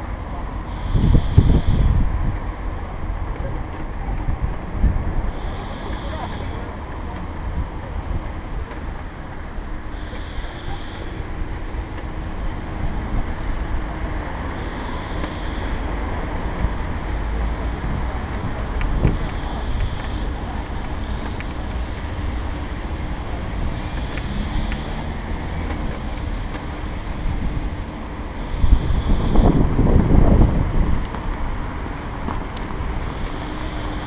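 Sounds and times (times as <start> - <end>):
wheels rolling on asphalt: 0.0 - 34.0
wind buffeting microphone: 0.0 - 34.0.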